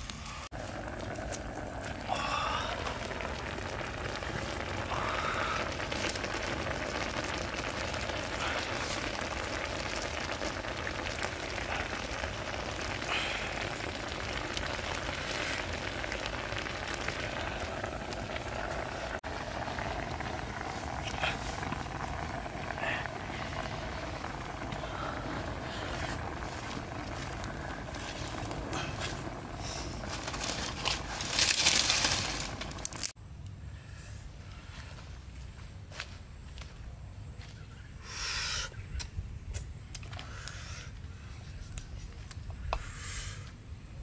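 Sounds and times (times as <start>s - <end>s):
broth bubbling in a pan: 0.0s - 33.2s
small pops and crackles: 0.0s - 33.2s, 39.0s - 42.9s.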